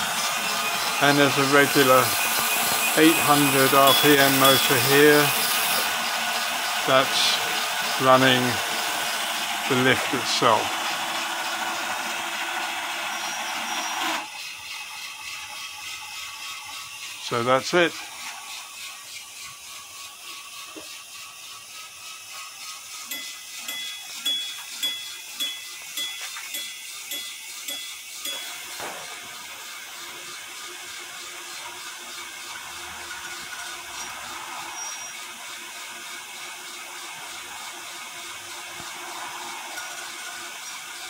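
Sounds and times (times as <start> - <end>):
small electric motor running: 0.0 - 41.0
small bell striking: 23.1 - 28.8.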